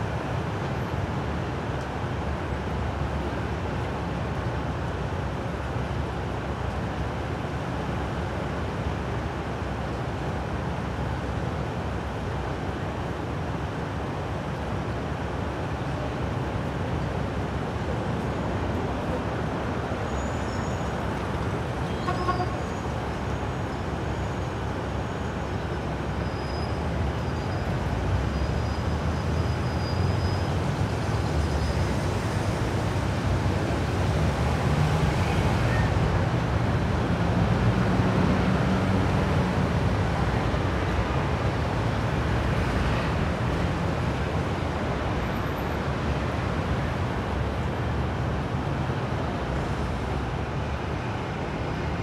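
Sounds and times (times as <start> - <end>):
wind: 0.0 - 52.0.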